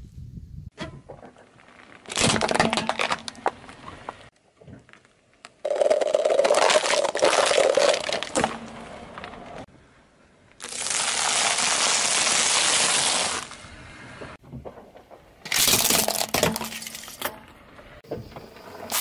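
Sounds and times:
tyre crunching popcorn: 0:04.8 - 0:09.6, 0:15.5 - 0:17.2, 0:18.8 - 0:19.0
tyre crushing plastic cups: 0:05.4 - 0:09.4, 0:15.5 - 0:17.4.

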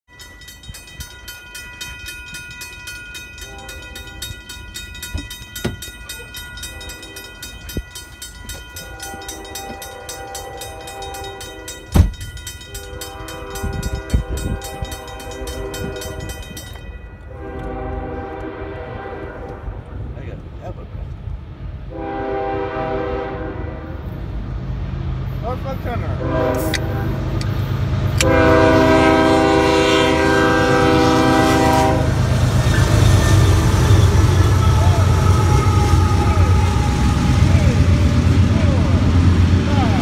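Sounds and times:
crossing bell ringing: 0:00.0 - 0:17.9, 0:25.5 - 0:40.0
locomotive air horn blasts: 0:03.4 - 0:04.3, 0:08.7 - 0:12.0, 0:12.7 - 0:16.3, 0:17.2 - 0:19.8, 0:21.9 - 0:24.0, 0:26.1 - 0:27.3, 0:28.2 - 0:32.3.

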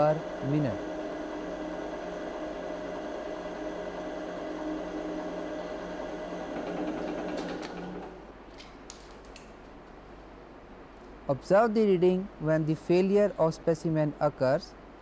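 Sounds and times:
testing machine humming: 0:00.0 - 0:08.3.

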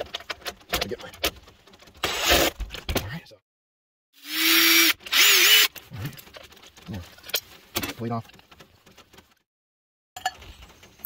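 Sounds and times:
handling clicks and knocks: 0:00.0 - 0:02.0
cordless drill running: 0:04.2 - 0:05.7.

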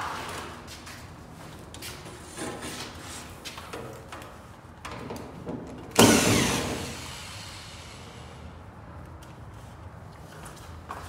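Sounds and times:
power drill whirring: 0:06.0 - 0:08.2.

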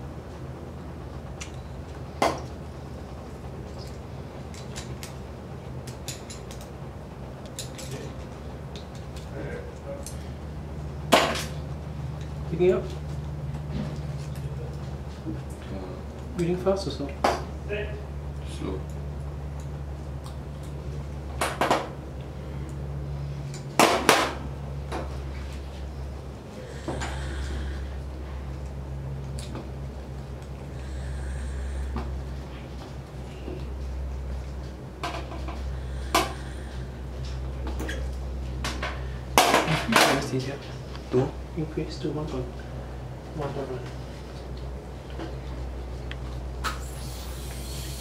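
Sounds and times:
steady low hum: 0:00.0 - 0:48.0
electric hair clippers humming: 0:46.8 - 0:48.0.

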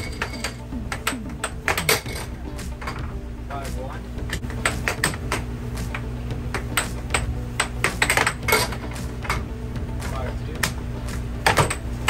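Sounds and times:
air hockey puck and mallets clacking: 0:00.0 - 0:03.1, 0:04.3 - 0:09.5, 0:11.4 - 0:11.9
steady low hum: 0:00.0 - 0:04.6.

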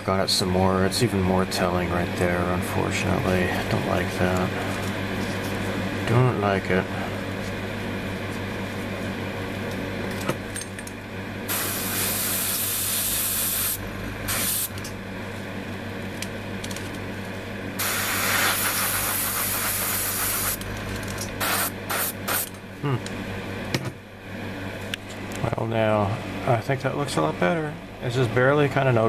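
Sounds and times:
airbrush hissing: 0:11.5 - 0:14.7, 0:17.8 - 0:20.6, 0:21.4 - 0:22.5.

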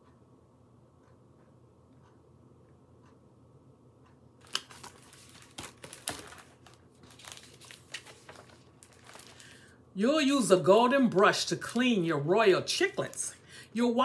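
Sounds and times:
book pages rustling: 0:04.4 - 0:09.7.

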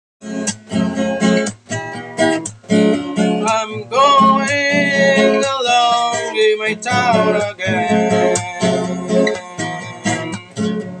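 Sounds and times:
acoustic guitar strumming: 0:00.2 - 0:11.0
man singing: 0:03.4 - 0:10.8.

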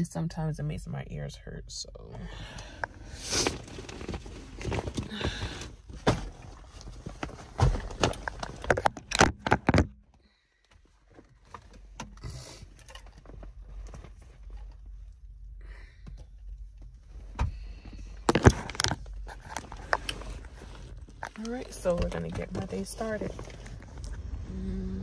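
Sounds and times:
clothes rustling: 0:03.1 - 0:08.9.

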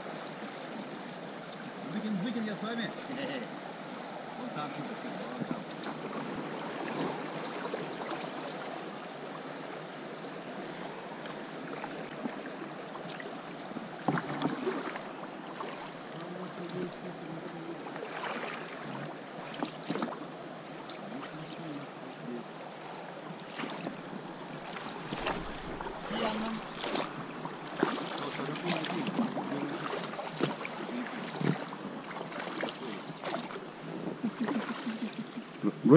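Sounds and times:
river water rushing and burbling: 0:00.0 - 0:35.9
sharp splashes or knocks: 0:24.6 - 0:27.2.

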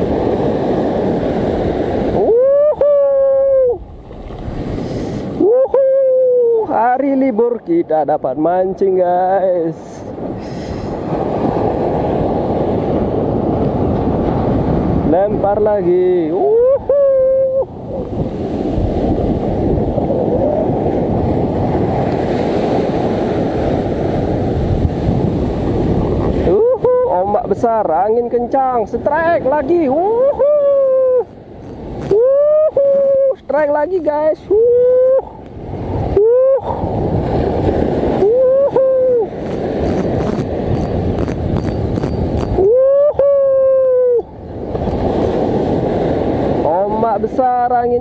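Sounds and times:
heavy surf breaking: 0:00.0 - 0:48.0
wind blowing across microphone: 0:00.0 - 0:48.0
fishing reel ticking: 0:31.6 - 0:32.2, 0:39.4 - 0:42.6
hooting tone bending: 0:38.2 - 0:42.8.

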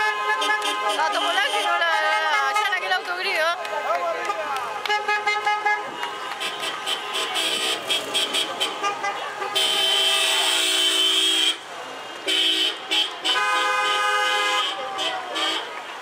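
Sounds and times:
car horns honking: 0:00.0 - 0:03.0, 0:04.2 - 0:16.0.

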